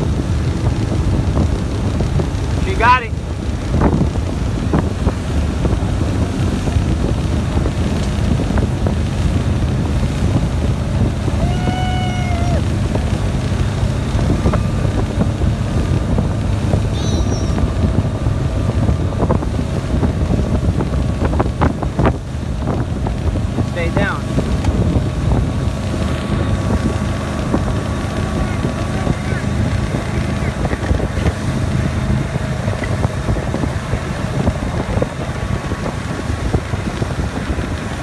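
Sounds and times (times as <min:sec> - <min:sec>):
motorboat engine hum: 0:00.0 - 0:38.0
rushing wake water: 0:00.0 - 0:38.0
wind buffeting microphone: 0:00.0 - 0:38.0
short held tone: 0:16.9 - 0:17.7.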